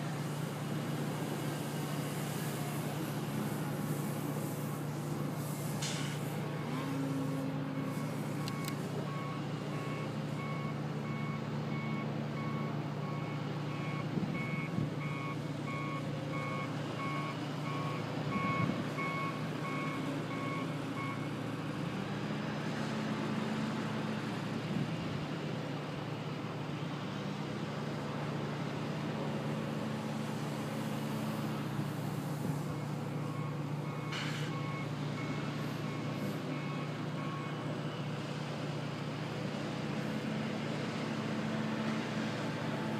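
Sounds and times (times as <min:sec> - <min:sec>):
low engine hum: 0:00.0 - 0:42.9
reversing alarm beeping: 0:07.7 - 0:21.3, 0:32.8 - 0:38.1.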